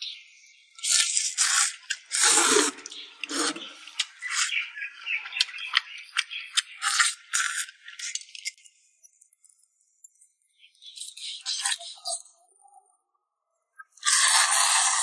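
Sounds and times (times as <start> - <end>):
noodles slurped: 0.8 - 4.6, 14.0 - 15.0.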